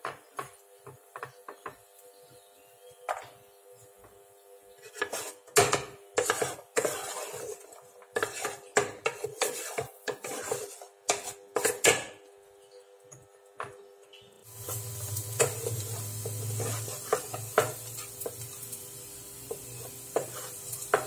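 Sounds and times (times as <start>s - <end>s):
wooden spatula scraping frying pan: 4.8s - 12.0s, 14.6s - 18.7s, 19.5s - 21.0s.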